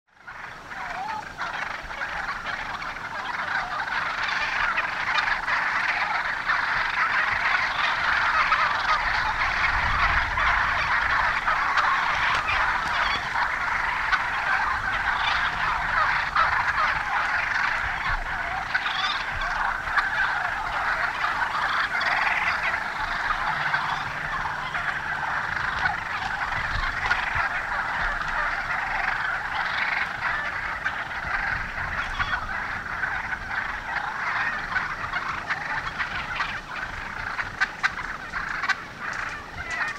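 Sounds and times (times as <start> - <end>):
turkeys calling: 0.1 - 39.9.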